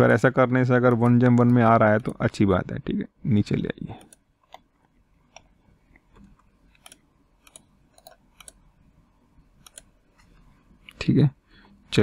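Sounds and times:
computer mouse clicks: 5.3s - 8.6s, 9.6s - 11.0s.

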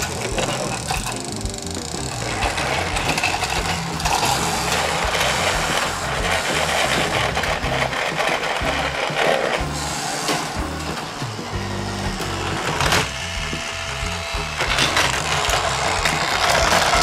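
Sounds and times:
plastic toy gears whirring clicking: 0.0s - 10.6s, 11.4s - 17.0s
background music: 0.0s - 17.0s.

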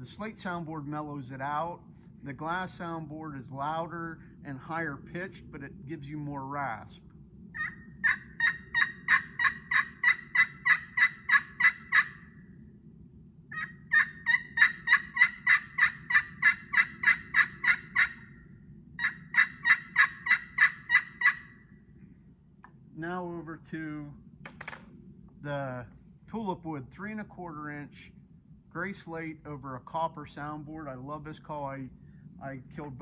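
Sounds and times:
raspy turkey call yelps: 7.5s - 12.4s, 13.5s - 18.4s, 19.0s - 21.6s.

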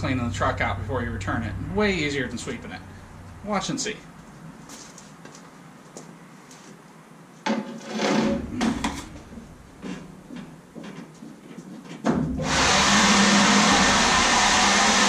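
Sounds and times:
footsteps on truck floor: 4.1s - 6.8s
electric leaf blower running: 12.4s - 15.0s.

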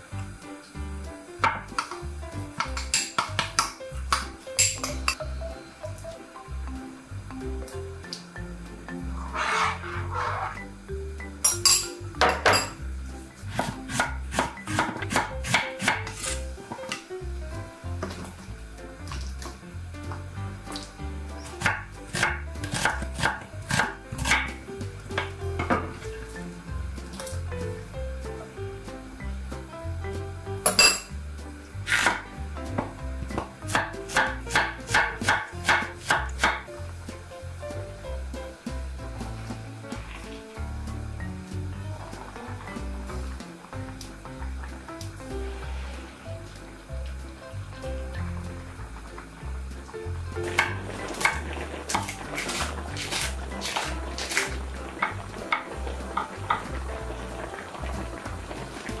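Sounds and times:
background music: 0.0s - 59.0s
knife chopping on wooden board: 13.5s - 16.9s, 31.9s - 32.2s, 33.3s - 36.7s.

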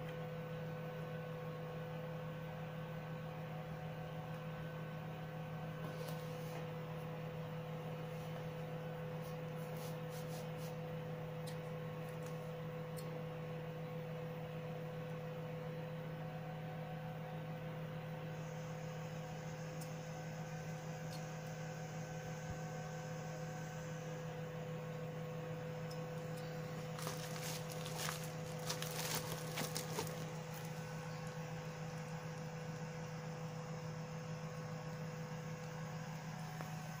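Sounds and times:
low electrical hum: 0.0s - 37.0s
crackling rustle of foam packaging: 26.6s - 31.3s.

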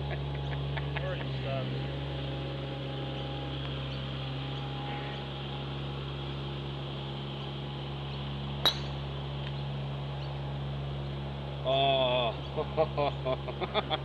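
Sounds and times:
mower engine drone: 0.0s - 14.0s
golf driver striking ball: 8.6s - 9.0s.

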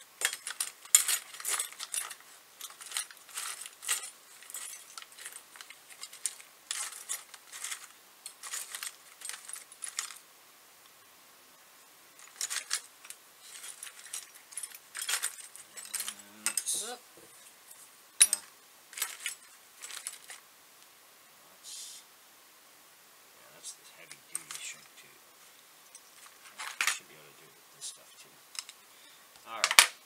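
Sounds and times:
small parts rattling in metal tin: 0.0s - 10.2s, 12.2s - 20.4s, 24.0s - 25.1s, 25.9s - 27.0s, 28.5s - 28.8s, 29.5s - 30.0s.

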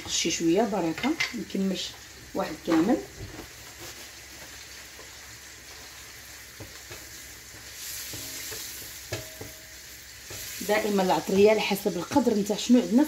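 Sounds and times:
chicken sizzling in a pan: 0.0s - 13.0s
wooden spoon knocking against pan: 8.1s - 9.7s.

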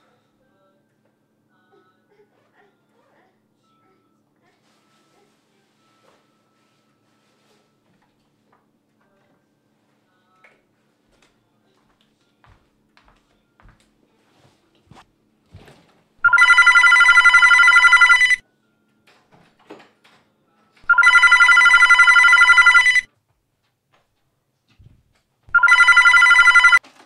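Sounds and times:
telephone ringing: 16.2s - 18.4s, 20.9s - 23.1s, 25.5s - 26.8s.

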